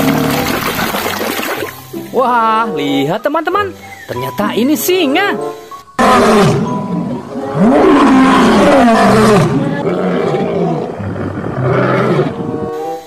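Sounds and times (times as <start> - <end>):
lion roaring: 6.0 - 12.8.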